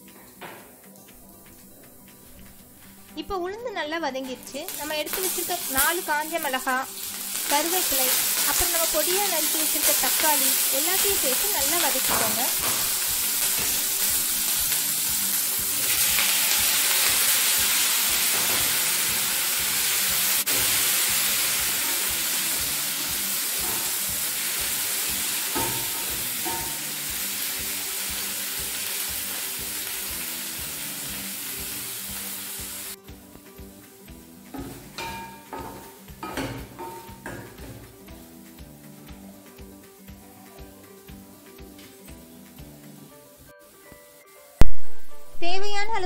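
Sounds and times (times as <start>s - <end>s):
food sizzling in hot oil: 4.2s - 40.3s.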